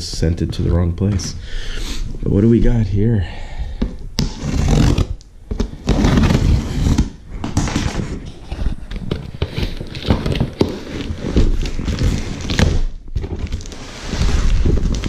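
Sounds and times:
knife slitting tape and cardboard: 4.2 - 8.1
cardboard scraping and crackling: 4.2 - 15.0.

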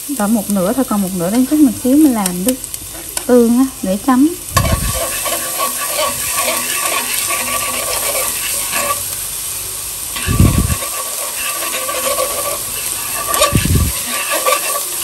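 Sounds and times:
garlic sizzling in hot oil: 0.0 - 15.0
chopsticks scraping a pan: 4.6 - 9.2, 10.1 - 15.0.

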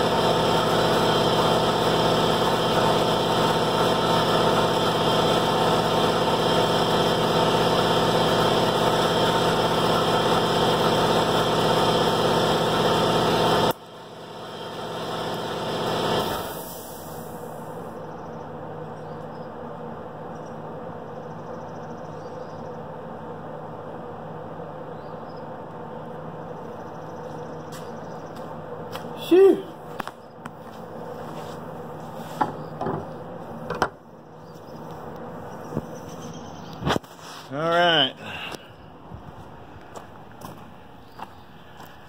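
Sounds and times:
air compressor running: 0.0 - 18.2, 26.6 - 42.0
air hiss: 16.2 - 17.8.

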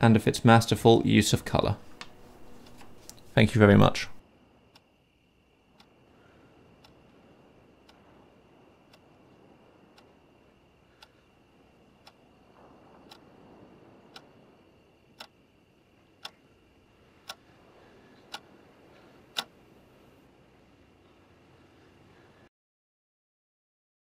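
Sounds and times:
clock ticking: 6.8 - 7.2, 7.8 - 8.1, 8.9 - 10.2, 11.9 - 12.3, 13.0 - 13.4, 14.0 - 14.4, 15.2 - 15.4, 16.2 - 16.4, 17.2 - 17.5, 18.2 - 18.6, 19.2 - 19.5.

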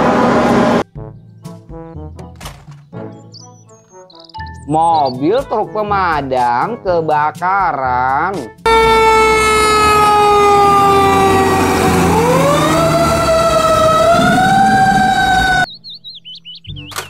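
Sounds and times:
fire truck siren: 0.0 - 0.8, 8.7 - 15.7
low engine rumble: 8.7 - 15.7.

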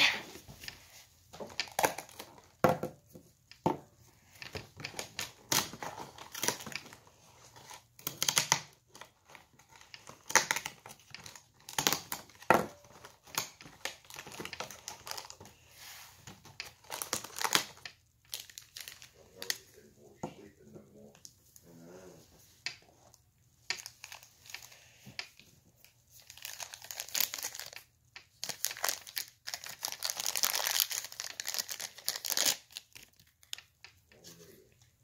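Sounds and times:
packaging crinkling and tearing: 1.5 - 2.6, 4.5 - 15.7, 16.3 - 19.8, 23.7 - 25.0, 26.1 - 33.8.

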